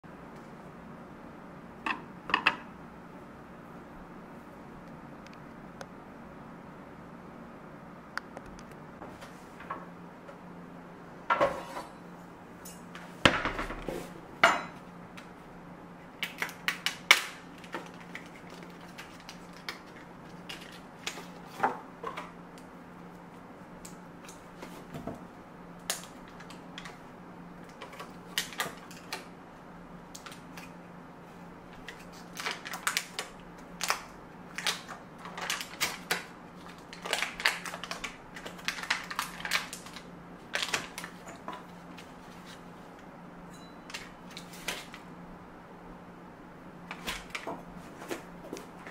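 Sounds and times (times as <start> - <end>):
foil wrapper crinkling: 16.2 - 21.5, 31.8 - 42.6.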